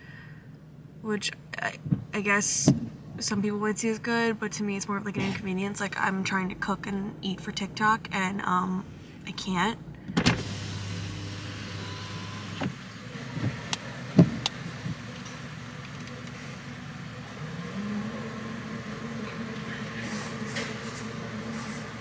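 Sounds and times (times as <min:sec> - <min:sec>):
car engine running: 0:10.3 - 0:22.0.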